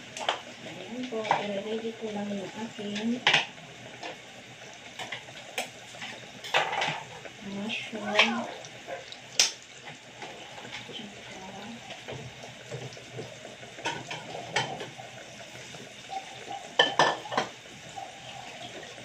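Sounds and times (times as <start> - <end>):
dishes and utensils clinking: 6.4 - 7.0, 16.8 - 17.5.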